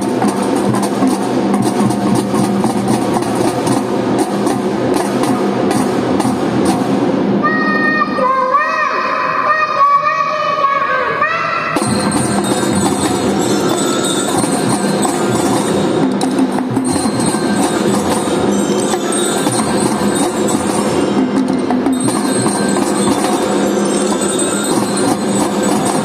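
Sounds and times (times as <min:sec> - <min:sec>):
snare drums rattling: 0:00.0 - 0:07.1, 0:11.8 - 0:26.0
marching drum band playing: 0:00.0 - 0:07.4, 0:11.8 - 0:26.0
ringing bell-like tones: 0:11.8 - 0:26.0.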